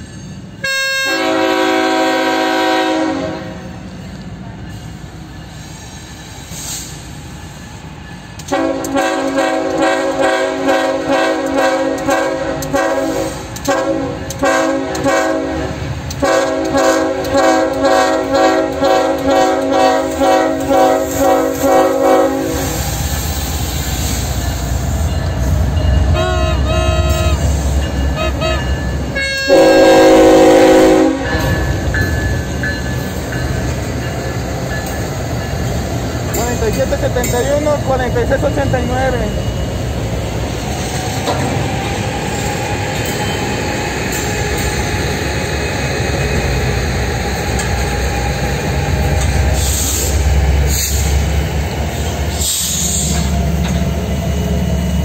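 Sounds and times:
locomotive horn chord pulses: 0:00.6 - 0:03.6, 0:08.5 - 0:22.6, 0:25.9 - 0:31.6.

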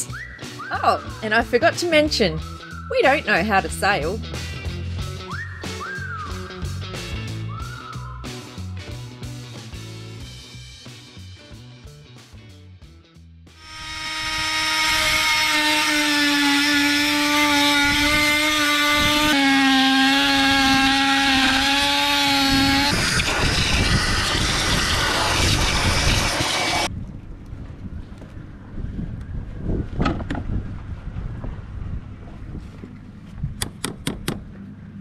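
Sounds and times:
cordless drill drilling into wood: 0:13.6 - 0:26.9.

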